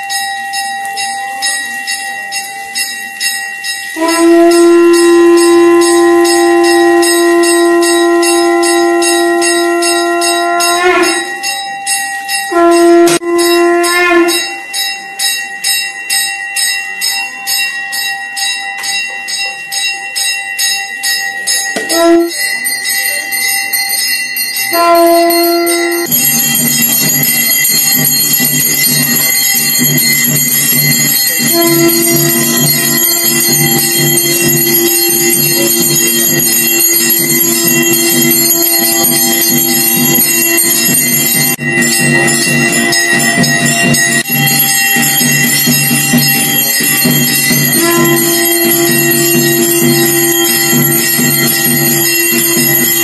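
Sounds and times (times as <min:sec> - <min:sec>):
temple bells ringing rapidly: 0:00.0 - 0:53.0
long held note: 0:04.0 - 0:11.6, 0:12.5 - 0:14.7, 0:21.8 - 0:22.4, 0:24.7 - 0:26.1, 0:31.4 - 0:40.8, 0:46.6 - 0:53.0
deep drum beat: 0:26.1 - 0:53.0.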